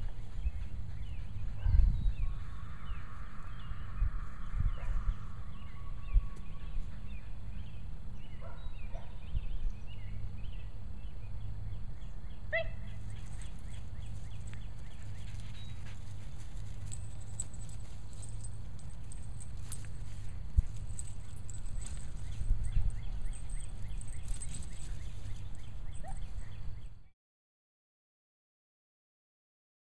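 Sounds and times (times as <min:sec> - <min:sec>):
steady low rumble: 0:00.0 - 0:08.2.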